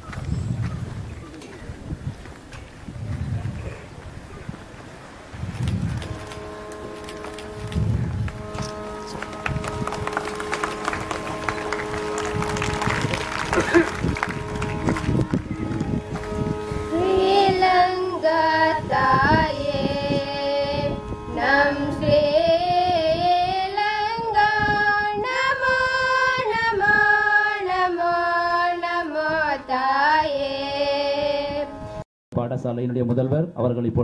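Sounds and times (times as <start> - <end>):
children singing in unison: 16.8 - 31.7.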